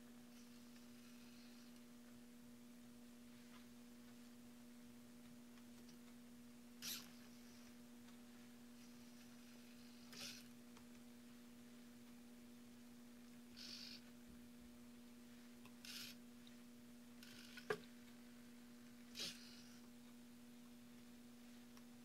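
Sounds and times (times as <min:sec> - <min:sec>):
steady faint hum: 0:00.0 - 0:22.0
servo motors whirring: 0:06.8 - 0:07.2, 0:09.1 - 0:10.5, 0:13.6 - 0:14.0, 0:15.8 - 0:16.2, 0:19.1 - 0:19.8.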